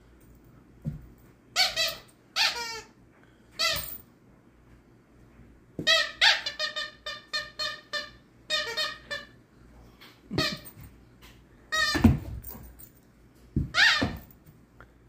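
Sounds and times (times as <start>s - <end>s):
squeaky dog toy squeaking: 1.6s - 2.9s, 3.6s - 4.0s, 5.8s - 9.4s, 10.4s - 10.7s, 11.7s - 12.2s, 13.7s - 14.3s.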